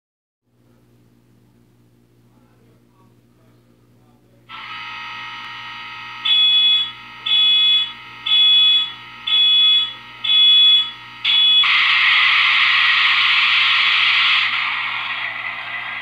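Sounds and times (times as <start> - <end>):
model locomotive running sound: 4.5 - 6.5, 11.7 - 16.0.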